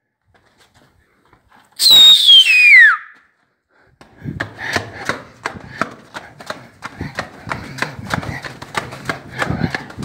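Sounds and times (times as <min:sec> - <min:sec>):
high-pitched whistle sliding down: 0:01.8 - 0:03.2
quick footsteps on hard floor: 0:04.0 - 0:10.0.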